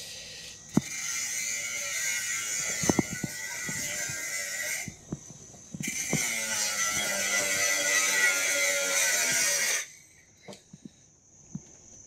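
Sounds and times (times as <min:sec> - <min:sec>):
power tool cutting sheet metal: 0:00.0 - 0:05.0, 0:05.8 - 0:10.0.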